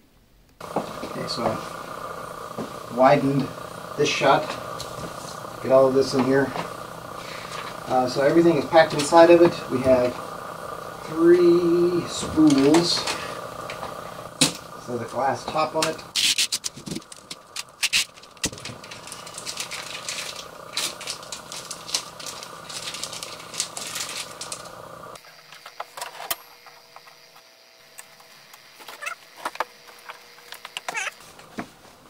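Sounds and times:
steady background hum: 0:00.0 - 0:32.0
packaging rustling and crinkling: 0:16.2 - 0:24.8.

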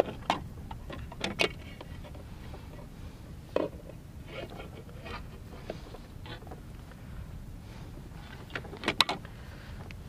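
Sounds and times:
steady low rumble: 0:00.0 - 0:10.0.

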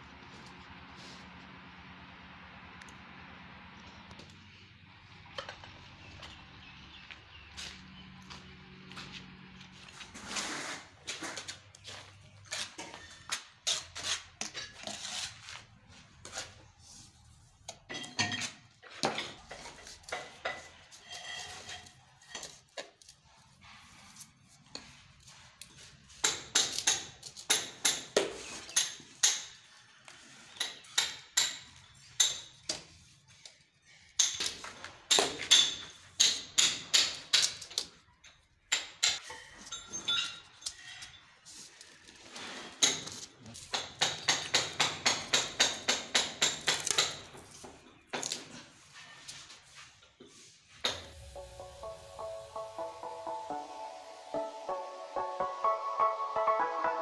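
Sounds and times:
tiles and tools tapping and clinking: 0:17.6 - 0:23.2, 0:25.6 - 0:41.2, 0:42.1 - 0:49.4
tiles scraping: 0:19.2 - 0:23.2.

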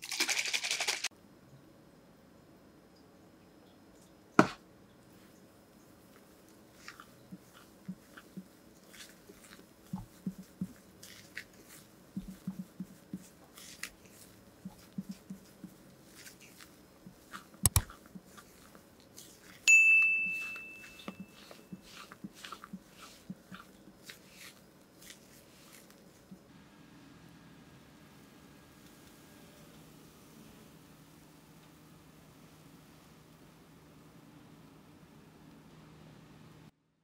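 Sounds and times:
spatula folding batter in bowl: 0:06.1 - 0:26.4
ringing glass clink: 0:19.7 - 0:21.3.

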